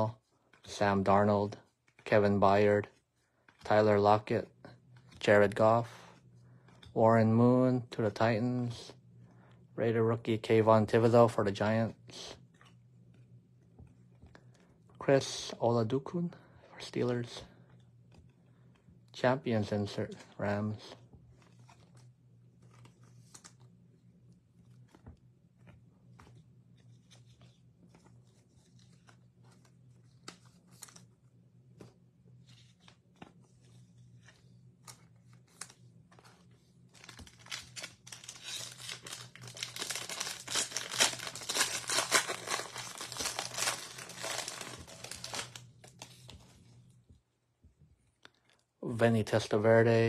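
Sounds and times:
cards clicking and rustling: 0:24.7 - 0:31.2, 0:31.8 - 0:46.5
wrapper tearing and crinkling: 0:37.0 - 0:46.3.

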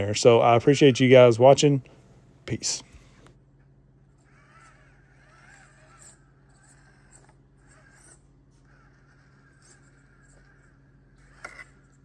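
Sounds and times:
toy car motor whining: 0:04.2 - 0:12.0.

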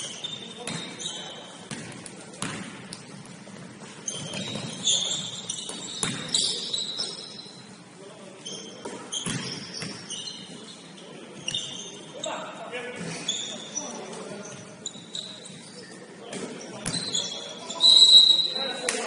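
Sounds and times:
sneakers squeaking on floor: 0:00.0 - 0:19.0
basketball bouncing: 0:00.6 - 0:00.9, 0:01.7 - 0:06.3, 0:09.2 - 0:10.0
players' voices: 0:04.2 - 0:19.0.

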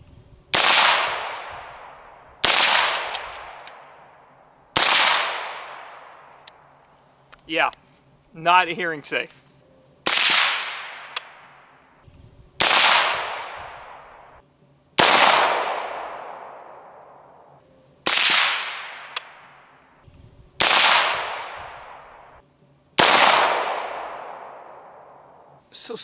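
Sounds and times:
gunshots with long echo: 0:00.5 - 0:06.5, 0:10.0 - 0:11.8, 0:12.6 - 0:14.4, 0:15.0 - 0:19.8, 0:20.6 - 0:22.4, 0:23.0 - 0:25.6.

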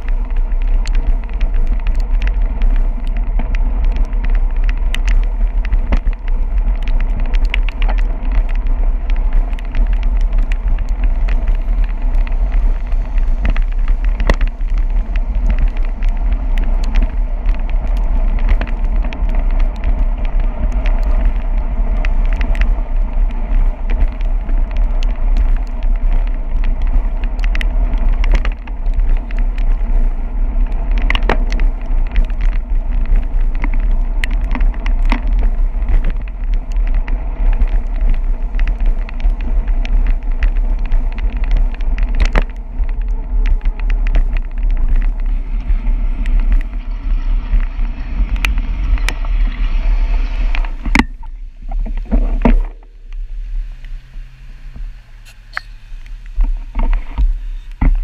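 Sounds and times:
tyres hissing on wet pavement: 0:00.0 - 0:28.2, 0:52.7 - 0:58.0
wind buffeting microphone: 0:00.0 - 0:58.0.

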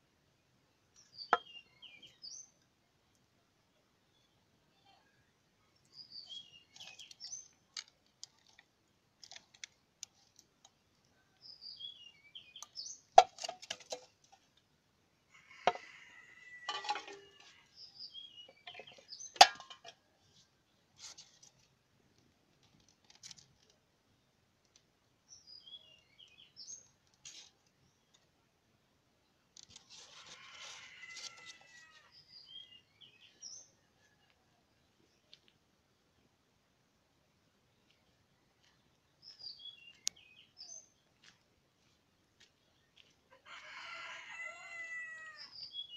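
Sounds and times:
birds chirping: 0:37.8 - 0:41.1.

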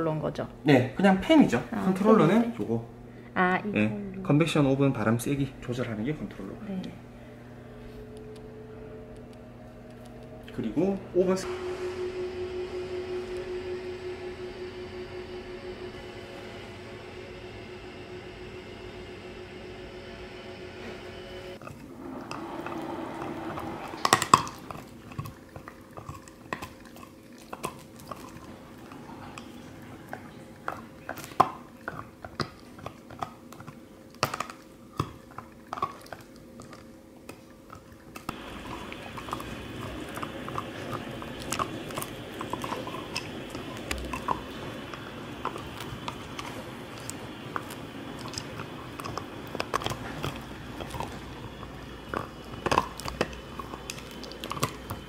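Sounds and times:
dog gnawing chew toy: 0:21.6 - 0:55.0
teeth clicking and scraping: 0:23.5 - 0:55.0.

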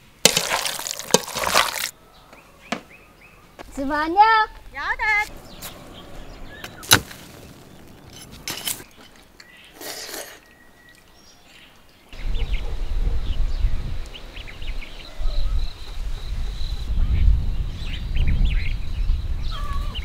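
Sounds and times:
earth scraping: 0:00.0 - 0:01.9, 0:04.6 - 0:10.6
hoe chopping into dry soil: 0:00.2 - 0:01.9, 0:06.6 - 0:08.9
birds chirping: 0:01.9 - 0:20.0.

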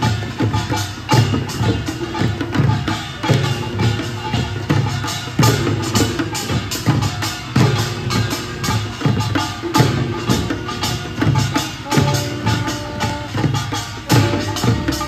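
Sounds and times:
drums playing marching beat: 0:00.0 - 0:15.0
small gongs clanging: 0:00.0 - 0:15.0
held high note: 0:10.0 - 0:15.0.

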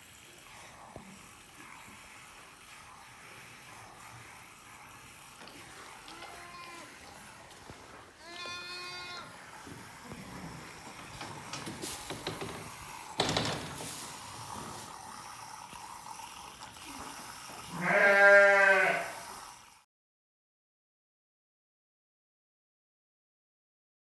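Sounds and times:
sheep bleating: 0:06.1 - 0:07.1, 0:08.2 - 0:09.4, 0:17.7 - 0:19.2.

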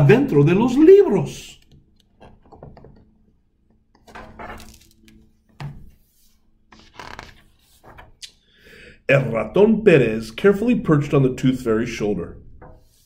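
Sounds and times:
book pages turning: 0:04.0 - 0:08.2
paper rustling: 0:04.2 - 0:08.2.

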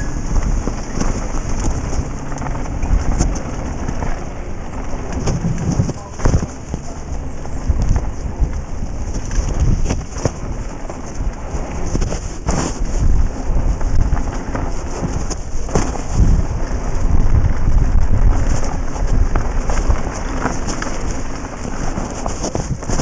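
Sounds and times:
bike rattling and knocking: 0:00.0 - 0:23.0
tyres crunching on gravel: 0:00.0 - 0:23.0
wind rumbling on microphone: 0:00.0 - 0:23.0.

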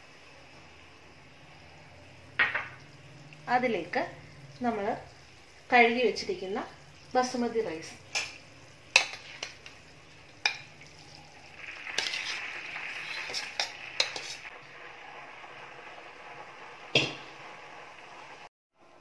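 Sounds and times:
boiling water bubbling: 0:00.7 - 0:18.5
rice splashing into boiling water: 0:07.0 - 0:18.5
bowl and utensil clinking on pot: 0:08.1 - 0:09.8, 0:11.9 - 0:14.4.

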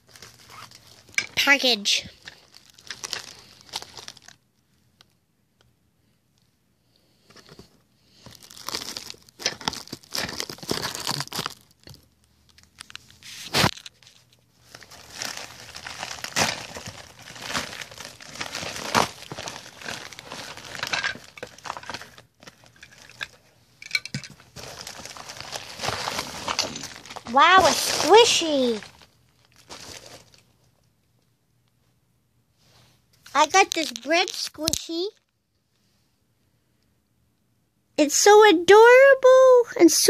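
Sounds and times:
packaging crinkling and tearing: 0:00.0 - 0:04.4, 0:08.2 - 0:23.5, 0:24.1 - 0:30.5, 0:33.3 - 0:35.3.

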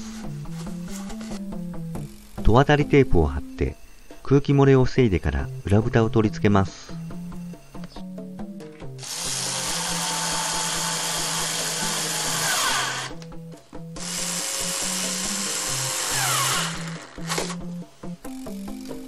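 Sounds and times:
electric screwdriver driving screws: 0:09.0 - 0:13.2, 0:14.0 - 0:17.6.

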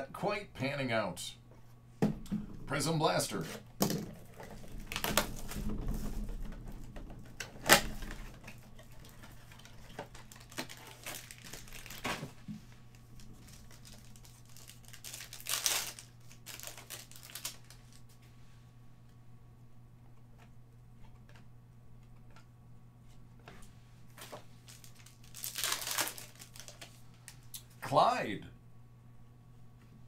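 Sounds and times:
foil crinkling: 0:08.0 - 0:18.1, 0:24.1 - 0:27.5.

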